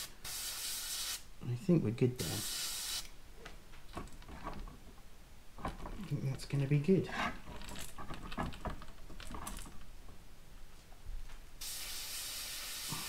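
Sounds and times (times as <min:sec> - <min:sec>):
airbrush air hissing: 0:00.0 - 0:01.3, 0:02.2 - 0:03.1, 0:11.6 - 0:13.0
small metal clicks and knocks: 0:03.8 - 0:04.9, 0:07.4 - 0:10.2.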